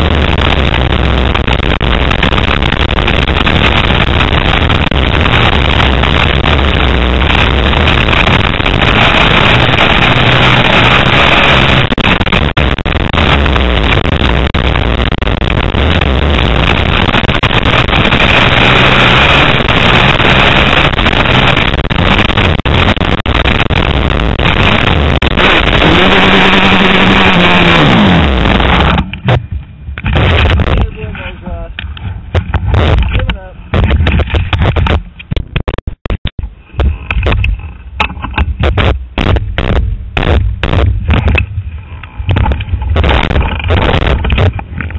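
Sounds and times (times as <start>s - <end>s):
motocross bike engine: 0.0s - 31.3s
wind rushing over microphone: 0.0s - 35.8s, 36.4s - 44.9s.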